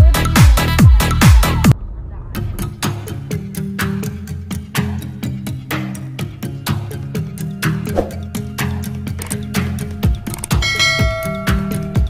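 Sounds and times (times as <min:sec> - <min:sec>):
background music with fast beat: 0:00.0 - 0:01.7.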